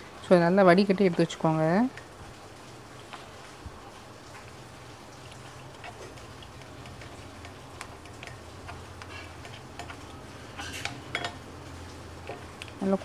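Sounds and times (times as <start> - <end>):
spoon scraping a mesh strainer: 5.7 - 11.3.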